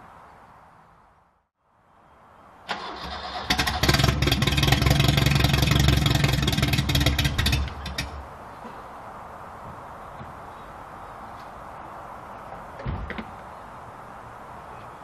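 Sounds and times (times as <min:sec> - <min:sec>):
engine starter cranking: 0:02.7 - 0:08.2.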